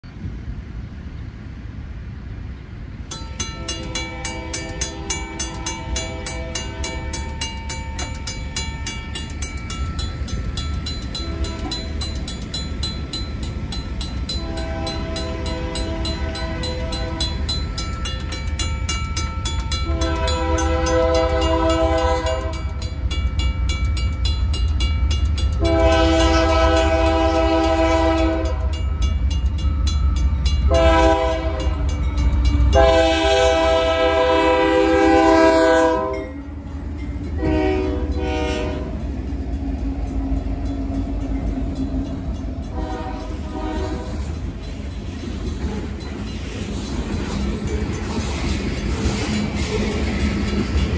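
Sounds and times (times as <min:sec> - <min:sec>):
low rumble of train: 0:00.0 - 0:50.9
crossing bell ringing rapidly: 0:03.1 - 0:50.9
locomotive horn blasts: 0:03.5 - 0:07.2, 0:11.1 - 0:12.0, 0:14.3 - 0:17.6, 0:19.7 - 0:22.8, 0:25.6 - 0:28.9, 0:30.6 - 0:36.4, 0:37.3 - 0:39.0, 0:42.7 - 0:44.4.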